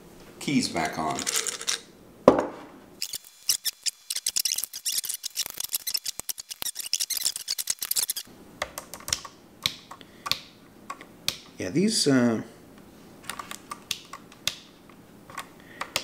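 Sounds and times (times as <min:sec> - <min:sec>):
plastic keycaps clattering: 0:01.1 - 0:01.8
glass jar knocking on wooden table: 0:02.3 - 0:02.7
keycaps clicking onto keyboard: 0:06.0 - 0:11.0.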